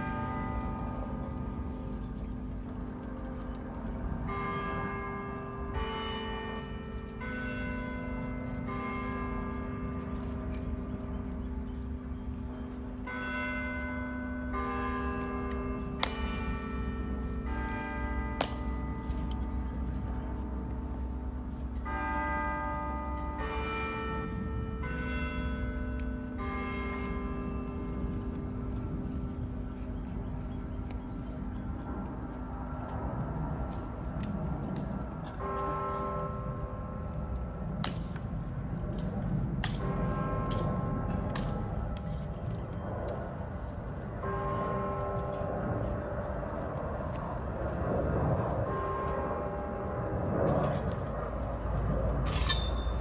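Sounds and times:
bells chiming a slow tune: 0:00.0 - 0:34.2, 0:52.3 - 0:53.0
steady low rumble: 0:45.2 - 0:53.0
bells chiming: 0:52.3 - 0:53.0.

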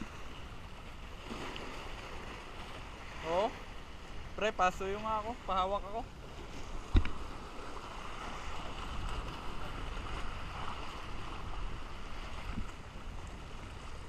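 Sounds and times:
sea water washing around boat: 0:00.0 - 0:14.0
wind: 0:00.0 - 0:14.0
sharp knock on boat: 0:06.9 - 0:07.2.

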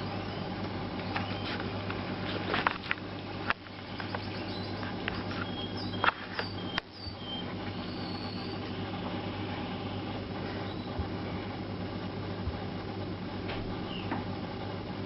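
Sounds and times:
steady low hum: 0:00.0 - 0:15.0
faint high squeaks: 0:10.5 - 0:11.0.

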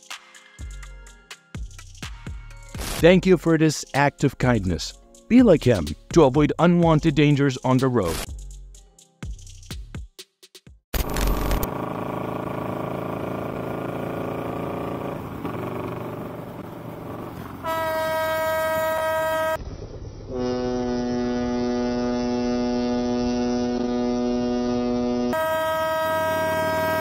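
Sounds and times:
motorcycle riding: 0:11.0 - 0:20.4, 0:22.4 - 0:27.0
low deep horn: 0:14.8 - 0:19.6, 0:20.3 - 0:27.0
high horn: 0:17.6 - 0:19.6, 0:20.3 - 0:27.0.

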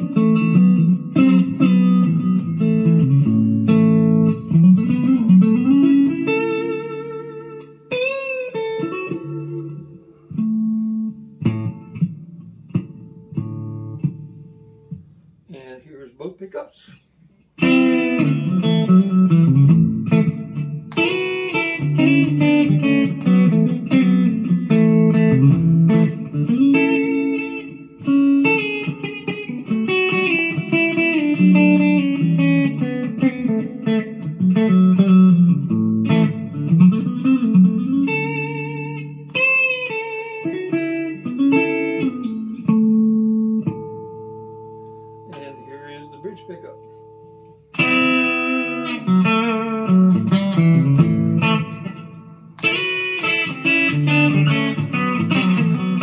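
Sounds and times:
electric guitar notes and chords: 0:00.0 - 0:15.3, 0:17.6 - 0:56.0.

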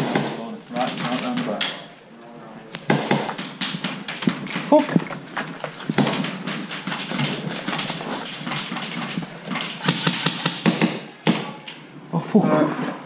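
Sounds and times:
sharp knocks: 0:00.0 - 0:01.9, 0:02.8 - 0:11.7
footsteps crunching on broken glass: 0:04.5 - 0:06.3.

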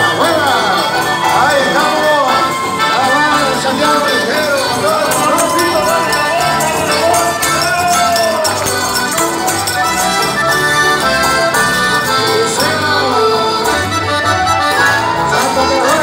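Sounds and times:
accordions: 0:00.0 - 0:16.0
guitar: 0:00.0 - 0:16.0.

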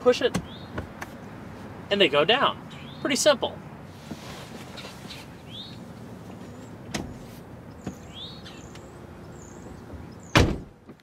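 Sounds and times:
birds chirping: 0:00.2 - 0:03.9, 0:04.7 - 0:10.6.

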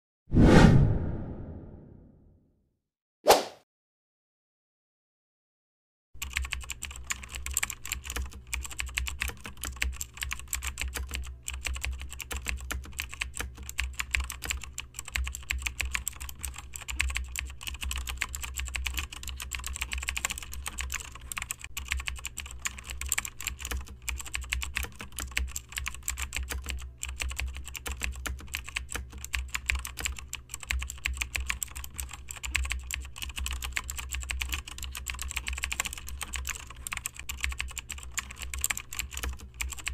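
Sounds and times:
low hum: 0:00.3 - 0:02.2.

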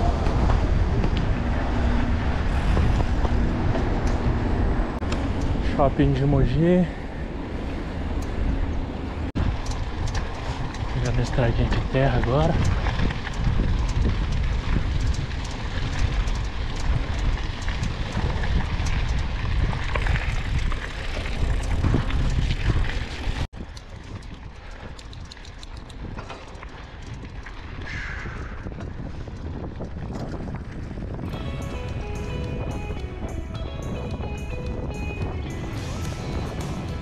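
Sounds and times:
wind buffeting microphone: 0:00.0 - 0:37.0
gravel clicks and rattles: 0:08.2 - 0:37.0.

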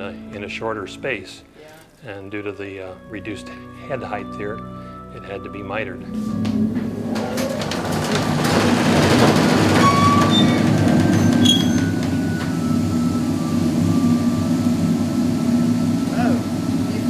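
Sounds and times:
deep pipe organ note: 0:02.1 - 0:17.0
faint higher tones: 0:11.4 - 0:17.0.

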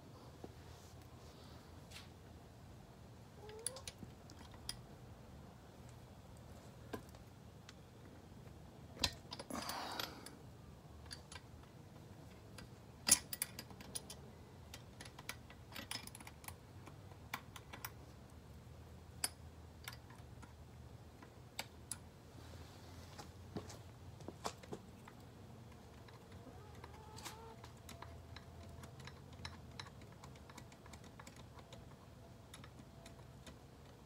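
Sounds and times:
wrench clicking and tapping on metal: 0:12.6 - 0:18.0, 0:19.2 - 0:20.6, 0:27.6 - 0:34.0.

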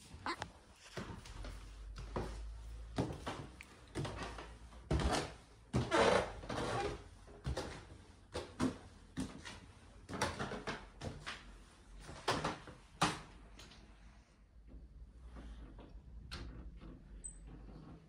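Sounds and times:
floorboards creaking: 0:02.1 - 0:07.8.

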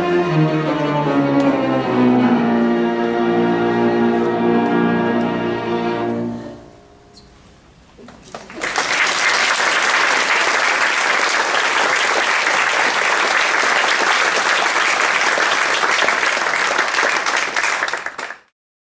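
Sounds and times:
audience applauding: 0:08.2 - 0:18.5.

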